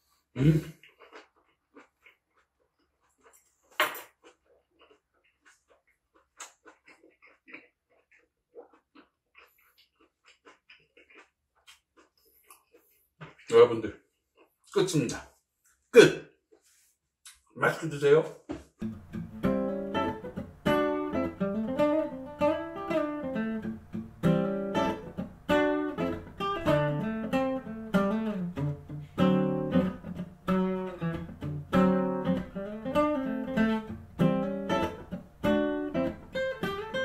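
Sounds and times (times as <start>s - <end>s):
plucked acoustic guitar melody: 18.8s - 37.0s
strummed guitar chords: 18.8s - 37.0s.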